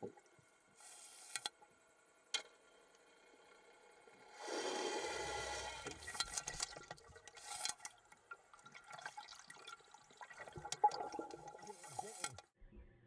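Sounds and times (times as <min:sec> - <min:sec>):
underwater clicks and crackles: 0:05.8 - 0:09.2, 0:10.2 - 0:12.5.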